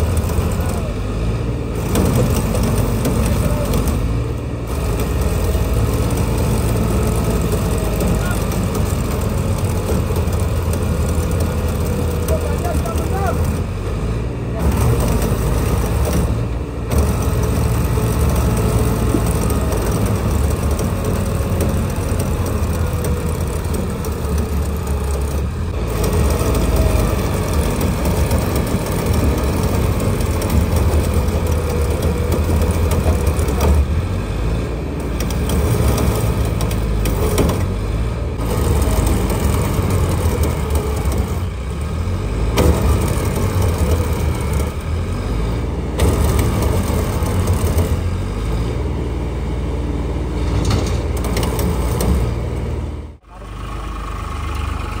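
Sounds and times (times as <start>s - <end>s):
diesel engine running: 0.0s - 55.0s
mechanical clatter: 35.0s - 45.1s, 45.9s - 48.6s, 50.4s - 53.1s.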